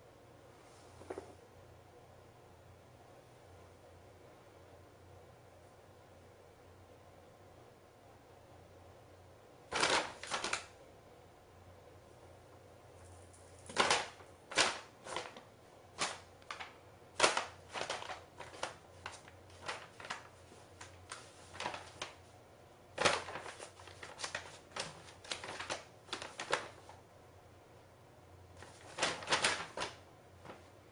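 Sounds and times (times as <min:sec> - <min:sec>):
cat scrabbling in bag: 0:09.7 - 0:10.7, 0:13.6 - 0:22.2, 0:23.0 - 0:26.9, 0:28.6 - 0:30.7
paper bag crackling: 0:09.7 - 0:10.8, 0:13.6 - 0:22.3, 0:22.9 - 0:27.0, 0:28.6 - 0:30.9.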